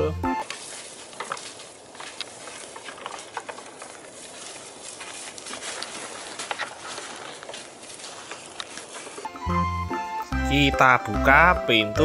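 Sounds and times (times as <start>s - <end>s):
steady outdoor hiss: 0.0s - 12.0s.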